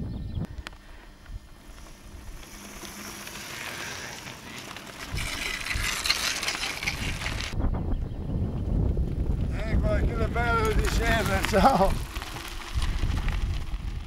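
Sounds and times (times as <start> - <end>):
bike tyres crunching on gravel: 0.5 - 7.6, 8.8 - 14.0
wind buffeting microphone: 6.8 - 14.0.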